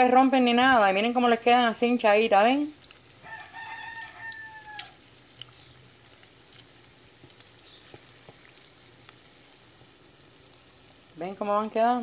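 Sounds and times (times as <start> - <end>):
fritters sizzling in hot oil: 0.0 - 12.0
rooster crowing: 3.2 - 5.0.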